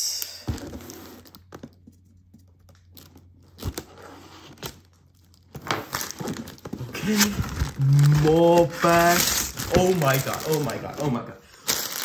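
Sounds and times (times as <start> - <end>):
cardboard scraping and tearing: 5.6 - 11.2.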